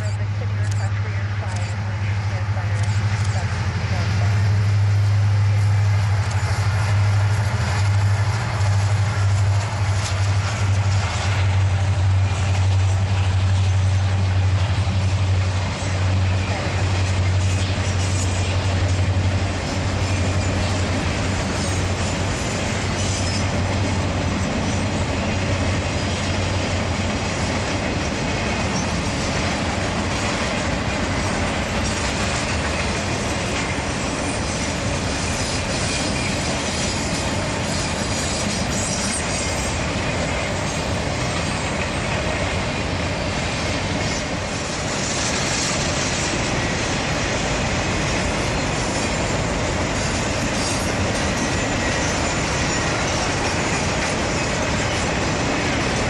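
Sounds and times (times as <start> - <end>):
train wheels clacking on rails: 0.0 - 56.0
high wheel squeal: 21.5 - 23.6, 34.2 - 42.1, 48.2 - 55.2.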